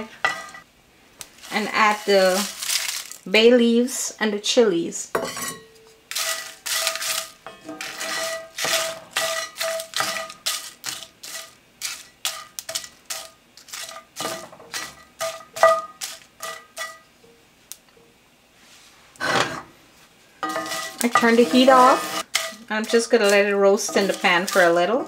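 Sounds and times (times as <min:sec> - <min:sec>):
wooden spoon stirring in skillet: 0:01.3 - 0:04.0, 0:06.1 - 0:17.0, 0:20.4 - 0:25.0.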